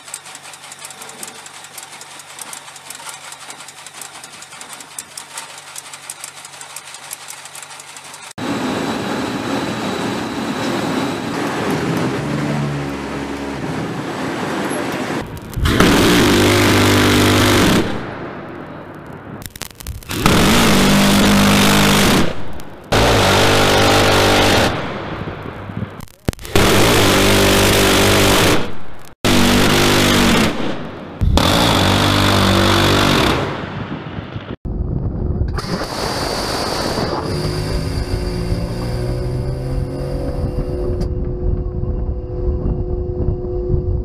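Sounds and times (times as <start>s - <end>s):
rumble with faint whine: 15.2s - 16.3s, 37.2s - 44.0s
rotary cannon firing bursts: 15.2s - 18.6s, 19.9s - 34.6s.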